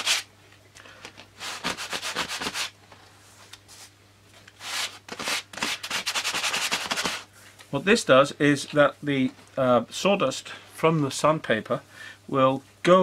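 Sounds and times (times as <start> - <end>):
sanding block scraping balsa: 0.0 - 0.3, 1.4 - 2.7, 4.6 - 7.3.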